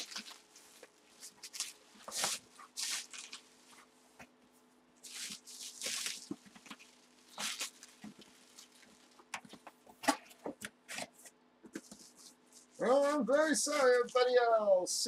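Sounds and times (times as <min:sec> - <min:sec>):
packaging crinkling and rustling: 0:00.0 - 0:03.9, 0:05.0 - 0:11.2.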